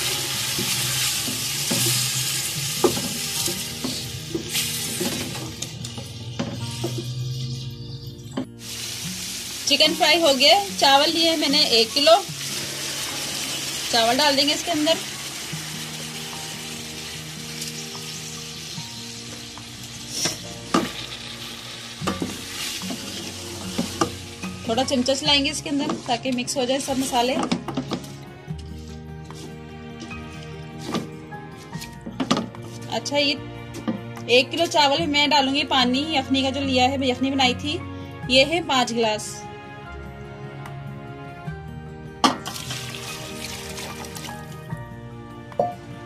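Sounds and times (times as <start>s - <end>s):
chicken sizzling in oil: 0.0s - 7.6s, 8.6s - 24.7s, 42.4s - 44.6s.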